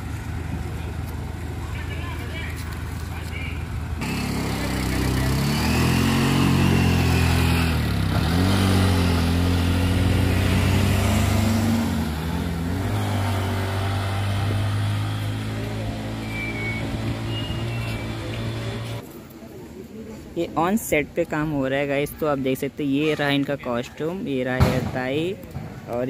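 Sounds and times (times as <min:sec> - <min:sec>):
auto-rickshaw engine revving: 0:00.0 - 0:19.0.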